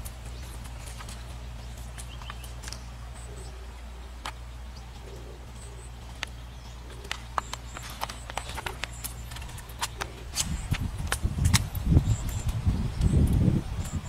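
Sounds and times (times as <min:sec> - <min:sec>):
twigs crackling underfoot: 0:00.0 - 0:13.6.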